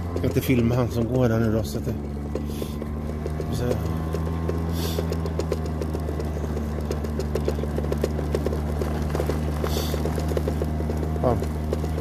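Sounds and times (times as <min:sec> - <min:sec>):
clicks and rattles on gravel: 0:00.0 - 0:12.0
scooter drive humming: 0:00.0 - 0:12.0.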